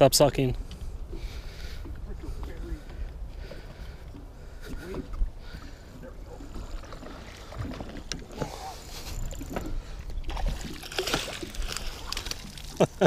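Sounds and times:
fish splashing at water surface: 6.8s - 13.0s.

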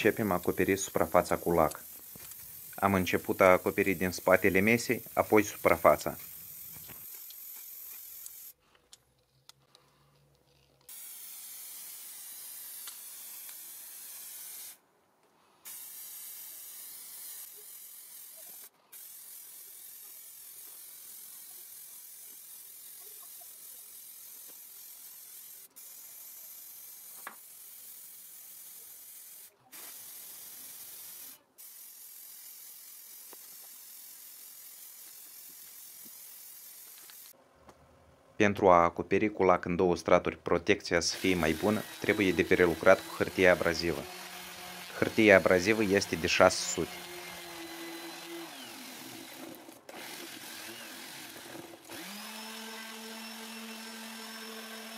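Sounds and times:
aerosol spray can hissing: 0.0s - 8.6s, 10.9s - 14.8s, 15.6s - 37.4s.

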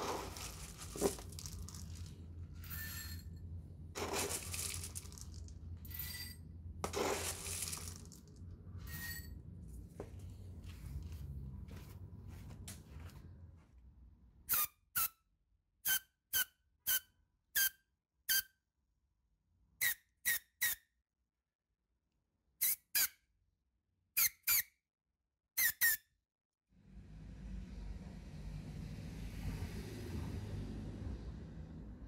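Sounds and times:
faint low rumble: 0.0s - 14.4s, 26.8s - 32.0s
short high-pitched squeaks: 14.5s - 15.2s, 15.8s - 18.6s, 19.8s - 20.9s, 24.2s - 24.8s, 25.6s - 26.1s.

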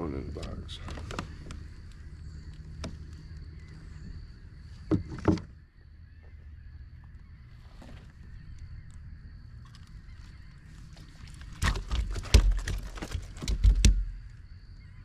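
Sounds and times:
fish flapping against net: 11.2s - 14.0s.

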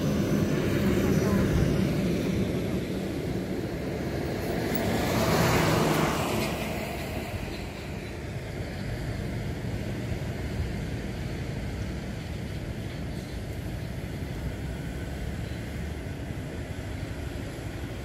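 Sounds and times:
road traffic rumble: 0.0s - 18.0s
car passing close by: 3.7s - 8.0s.

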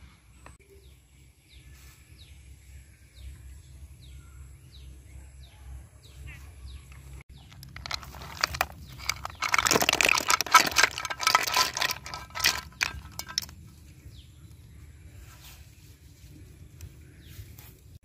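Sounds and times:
shells clattering on plastic: 6.9s - 13.7s.

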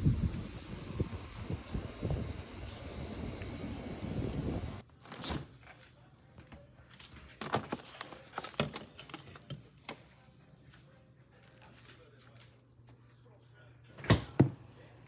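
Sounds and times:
wind noise on microphone: 0.0s - 4.8s
plastic wrap rustling: 7.0s - 10.3s, 11.2s - 12.6s.

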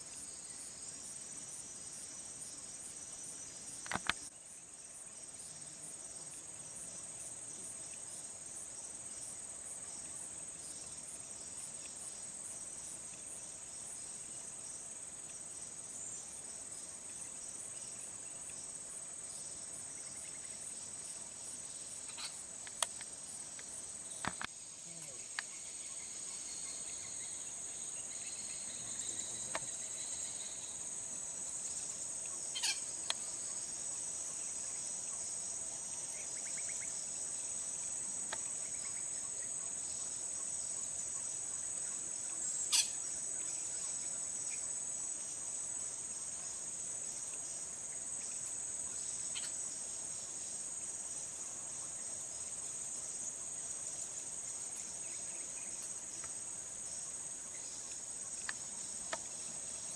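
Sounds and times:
insects shrilling: 21.8s - 30.8s, 32.5s - 33.5s, 42.6s - 44.6s.

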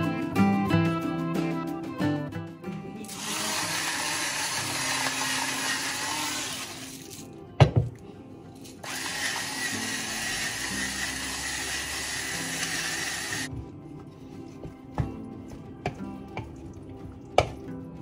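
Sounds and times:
electric spice grinder whirring: 3.1s - 6.9s, 8.8s - 13.5s.

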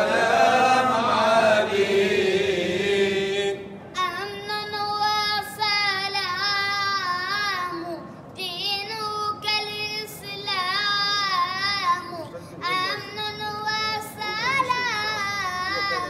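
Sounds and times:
boy singing unaccompanied: 4.0s - 16.0s.

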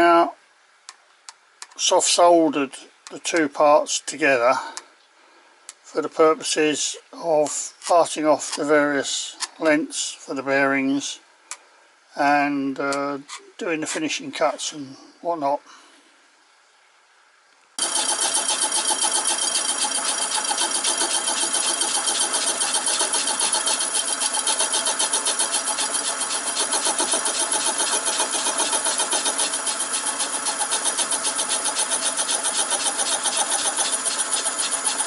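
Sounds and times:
saw cutting metal ringing: 17.8s - 35.0s.

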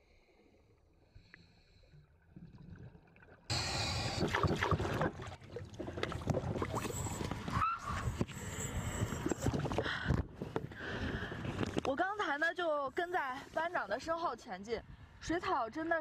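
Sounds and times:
water splashing and sloshing: 0.2s - 12.6s.

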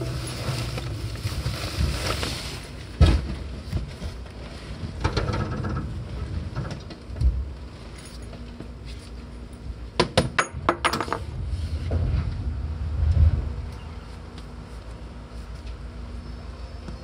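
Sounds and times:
electric train rumbling: 0.0s - 3.6s, 11.2s - 17.0s.

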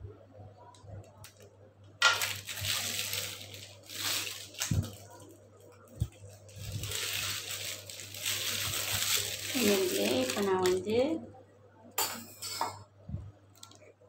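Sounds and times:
plastic piping bag crinkling: 2.0s - 11.1s.

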